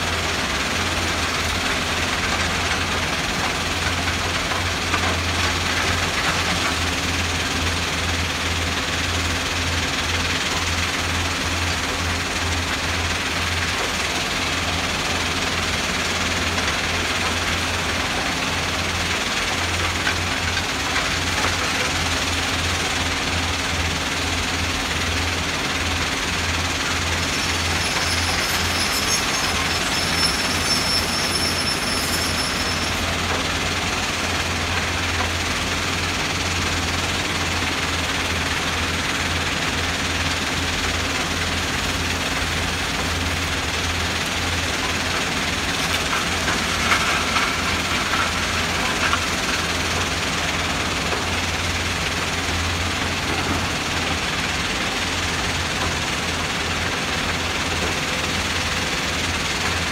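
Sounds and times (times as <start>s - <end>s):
excavators working stone: 0.0s - 59.9s
stone crusher rumble and rattle: 0.0s - 59.9s
thin high whine: 27.3s - 33.2s.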